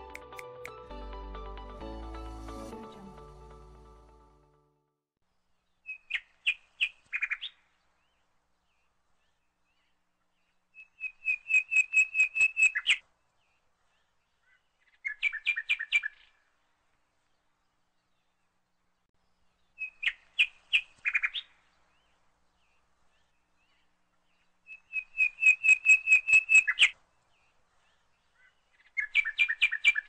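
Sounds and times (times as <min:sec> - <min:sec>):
small bird chirping: 0:10.8 - 0:13.0, 0:19.6 - 0:21.6, 0:22.7 - 0:27.0, 0:27.8 - 0:30.0.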